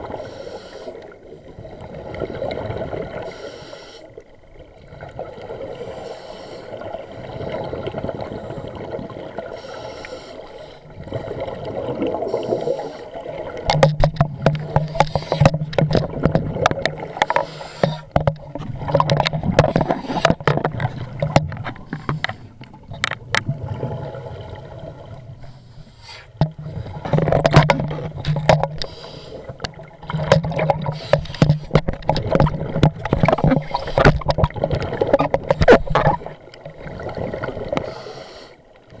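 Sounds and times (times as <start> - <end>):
underwater regulator bubbles: 4.8 - 25.6, 26.3 - 39.0.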